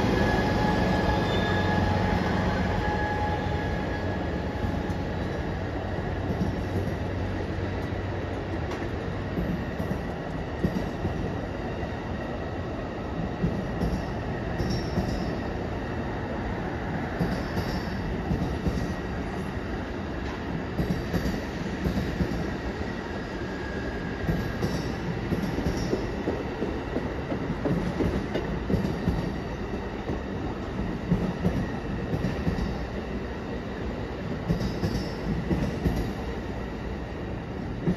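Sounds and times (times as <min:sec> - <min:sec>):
faint wheel squeal: 0:00.6 - 0:02.0
train wheels clattering on rail: 0:04.4 - 0:12.0, 0:13.1 - 0:15.9, 0:16.8 - 0:36.6, 0:37.6 - 0:37.9.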